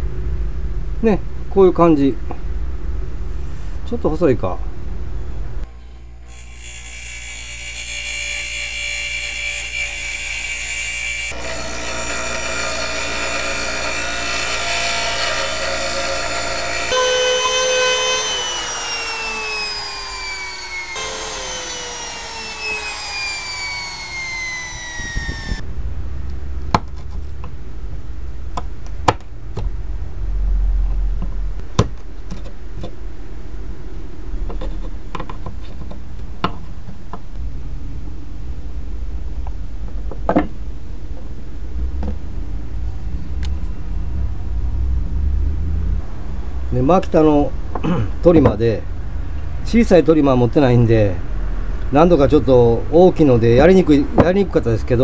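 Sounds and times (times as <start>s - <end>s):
electric motor high whine: 6.2s - 25.6s
router winding down: 6.3s - 25.6s
low rumble: 25.6s - 26.6s, 29.4s - 31.6s, 40.7s - 46.8s.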